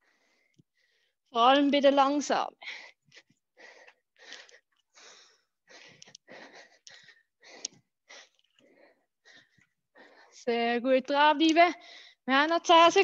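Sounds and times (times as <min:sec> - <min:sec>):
person breathing hard: 0:00.0 - 0:01.3, 0:02.6 - 0:10.5, 0:11.8 - 0:12.2.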